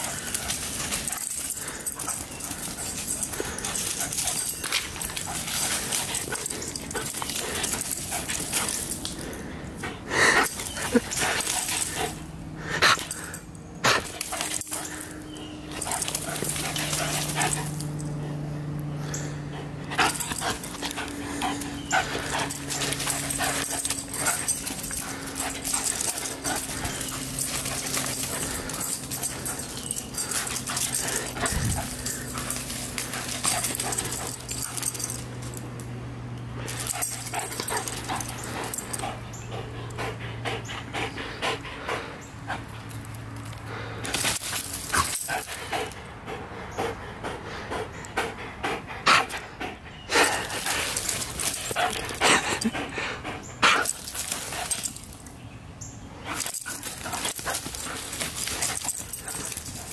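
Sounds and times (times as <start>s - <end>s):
rustling leaves: 0.0s - 13.4s, 53.8s - 59.9s
steady low hum: 0.0s - 59.9s.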